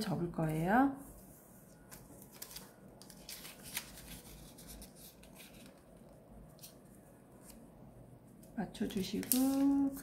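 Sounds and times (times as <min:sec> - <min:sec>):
paper rustling and crinkling: 0:01.1 - 0:07.6, 0:08.9 - 0:10.0.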